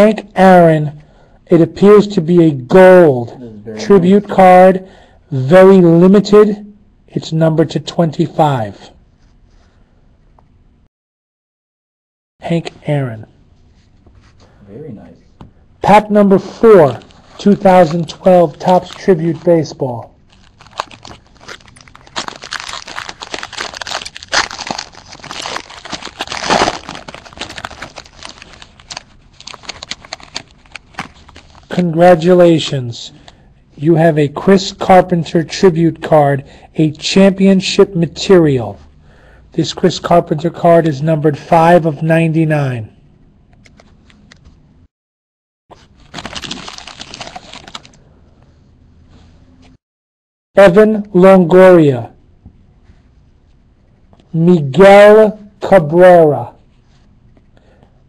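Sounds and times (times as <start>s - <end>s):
foil wrapper crinkling and tearing: 20.3s - 31.7s, 45.7s - 48.0s.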